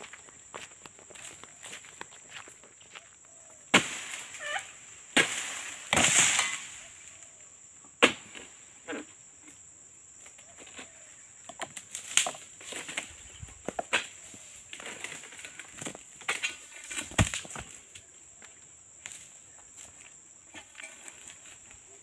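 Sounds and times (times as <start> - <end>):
palm fronds snapping and rustling: 3.7 - 6.9, 11.6 - 18.1.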